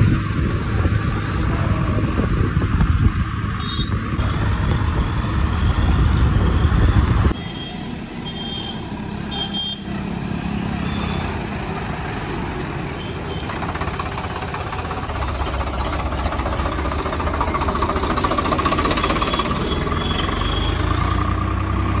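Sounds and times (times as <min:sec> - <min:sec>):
diesel engine clattering: 0:08.6 - 0:22.0.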